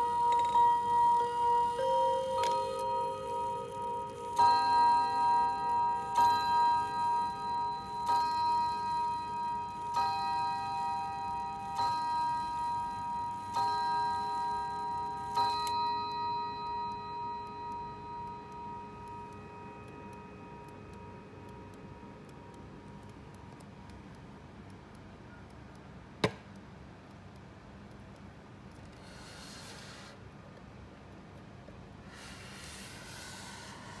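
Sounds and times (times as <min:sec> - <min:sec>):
clock chime strokes ringing: 0:00.0 - 0:22.3
clock ticking: 0:00.0 - 0:34.0.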